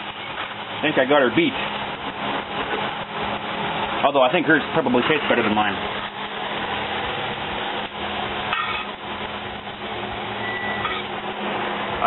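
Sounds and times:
frying pan and utensils knocking: 8.5s - 9.0s
short high beep: 10.4s - 11.1s.

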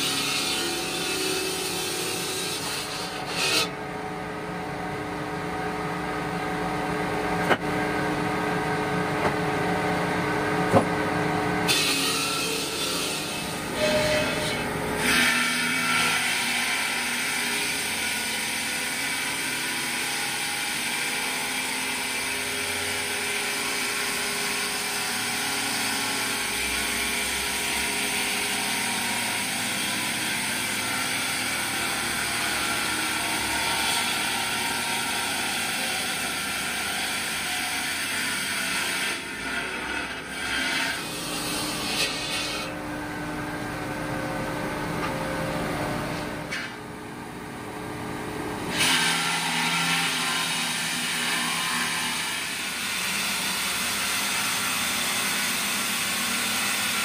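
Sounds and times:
circular saw grinding stone: 0.0s - 3.7s, 11.7s - 17.9s.

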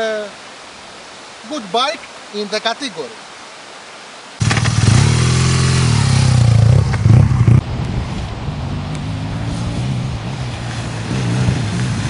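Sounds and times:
motorcycle engine revving: 4.4s - 7.8s, 8.5s - 12.0s.

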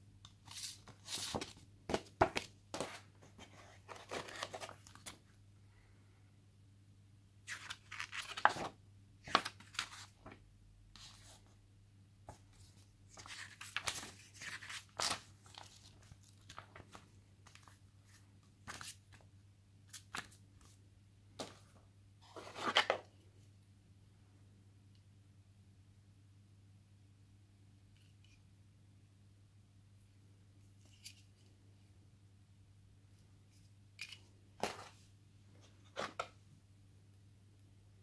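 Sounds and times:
paper pages rustling: 0.4s - 5.2s, 7.5s - 10.4s, 12.3s - 19.2s.

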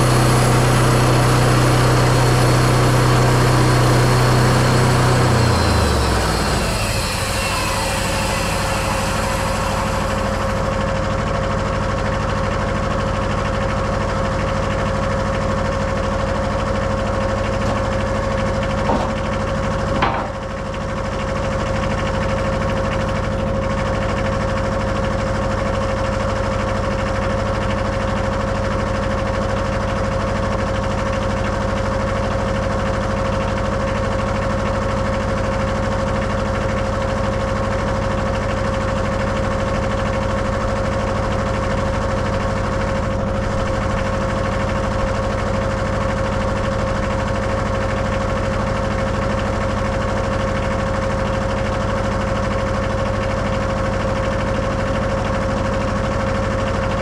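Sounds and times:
diesel engine rumbling: 0.0s - 12.3s
sawmill whine: 0.0s - 57.0s.

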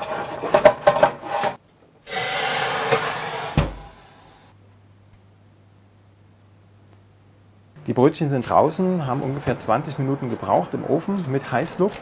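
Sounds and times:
steam injector hissing: 2.1s - 4.5s
faint steady hum: 3.8s - 11.2s.

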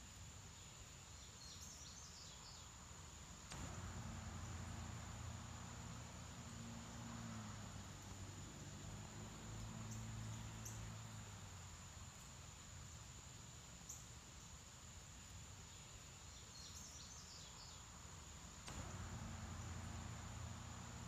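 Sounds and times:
low hum: 3.5s - 12.3s, 18.7s - 21.0s.

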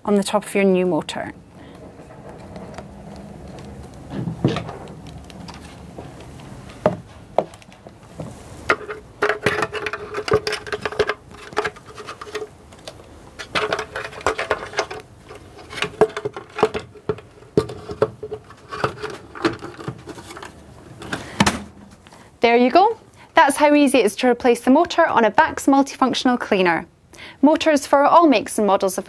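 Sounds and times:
plastic parts knocking and clicking: 8.7s - 21.7s.

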